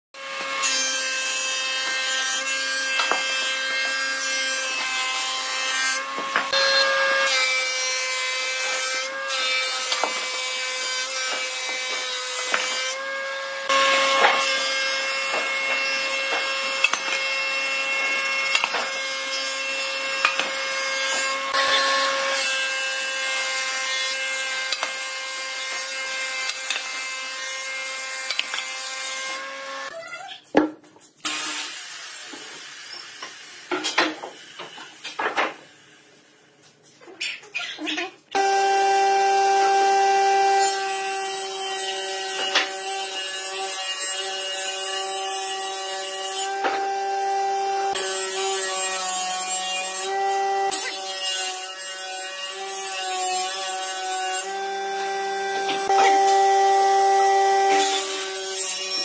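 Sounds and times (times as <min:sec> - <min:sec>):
boards being planed: 0:00.3 - 0:29.8, 0:38.4 - 0:59.0
thickness planer whine: 0:38.4 - 0:43.6, 0:44.2 - 0:51.1, 0:53.8 - 0:58.6.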